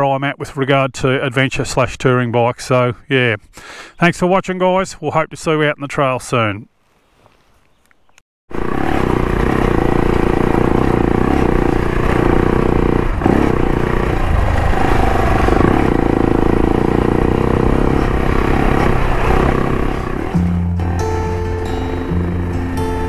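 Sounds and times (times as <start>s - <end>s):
motorcycle engine running: 8.5s - 23.0s.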